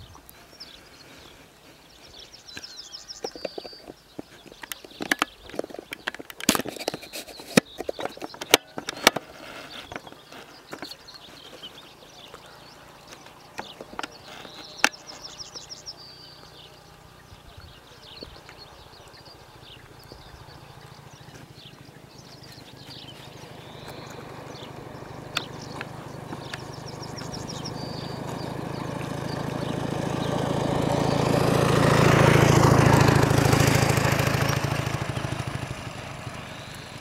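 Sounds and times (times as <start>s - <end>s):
sharp clicks and knocks: 2.5s - 11.6s.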